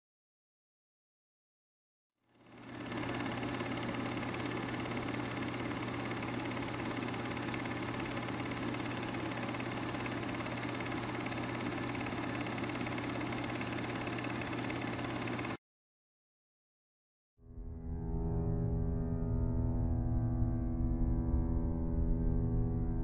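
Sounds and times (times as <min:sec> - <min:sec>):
film projector whirring: 0:02.3 - 0:15.6
low hum: 0:17.5 - 0:23.0.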